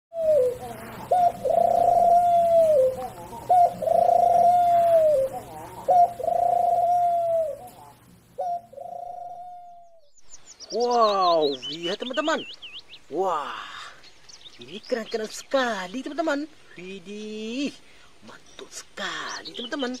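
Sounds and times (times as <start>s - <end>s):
pigeon cooing: 0.1s - 10.1s.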